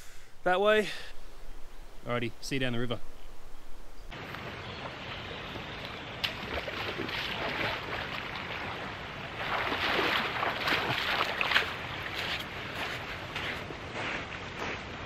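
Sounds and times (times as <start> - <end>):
rushing river water: 4.1 - 15.0.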